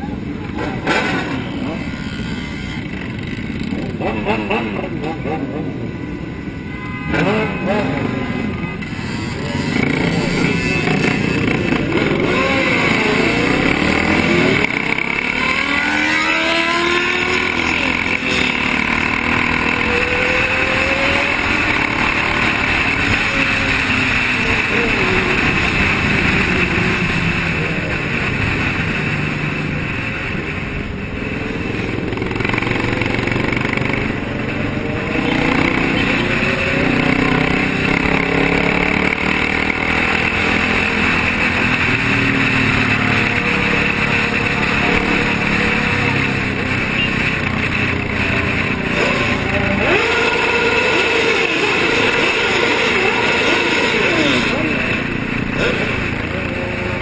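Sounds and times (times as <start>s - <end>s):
motorcycle engines revving: 0.0s - 57.0s.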